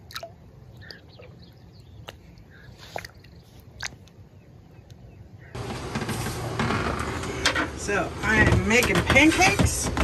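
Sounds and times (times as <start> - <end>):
water splashes and drips: 0.0 - 4.2.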